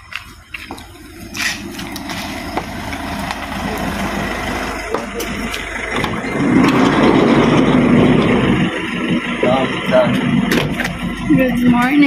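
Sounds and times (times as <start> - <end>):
van engine idling: 0.0 - 12.0.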